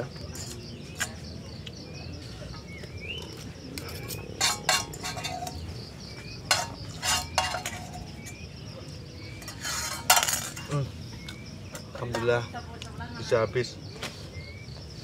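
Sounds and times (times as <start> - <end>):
metal spoon scraping a frying pan: 0.2 - 1.3, 3.8 - 8.5, 9.3 - 10.8.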